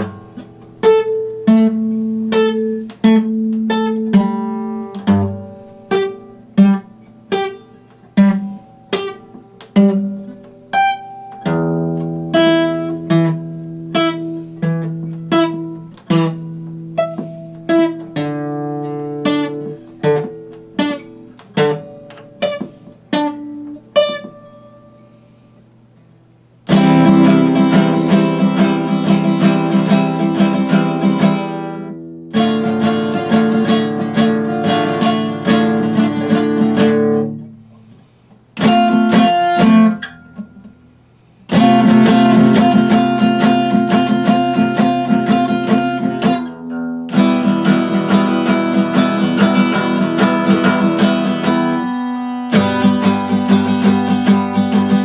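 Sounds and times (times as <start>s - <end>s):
acoustic guitar chord strumming: 0.0s - 55.0s
acoustic guitar plucked notes: 0.0s - 55.0s.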